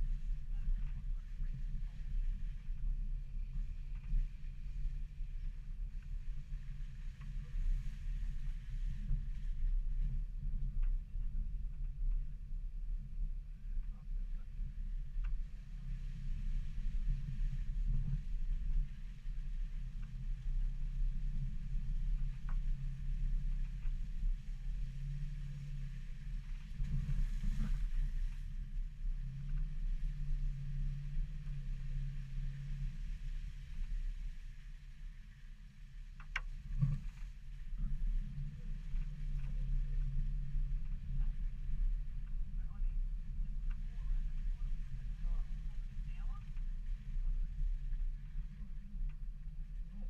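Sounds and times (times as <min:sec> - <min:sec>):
muffled car rumble on dirt track: 0:00.0 - 0:50.0
faint ticks: 0:36.0 - 0:50.0.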